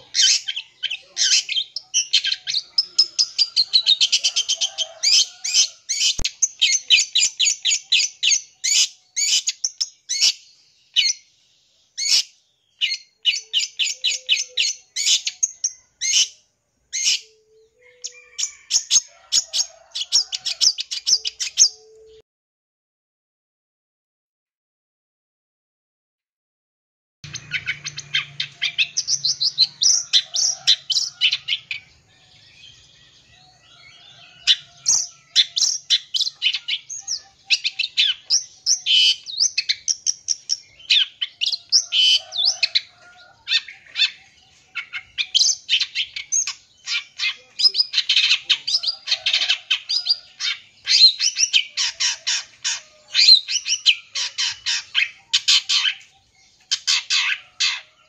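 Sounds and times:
shrike singing rapid chirps: 27.2s - 57.9s.

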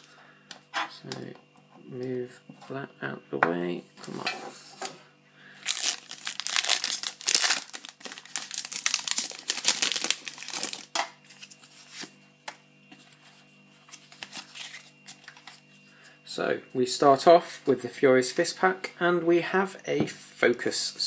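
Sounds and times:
foil wrapper tearing and crinkling: 5.6s - 12.1s, 14.0s - 15.2s.

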